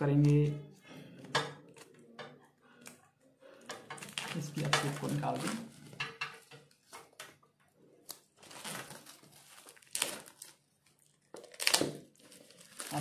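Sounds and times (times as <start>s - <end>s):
plastic wrapping crinkling: 3.6s - 13.0s.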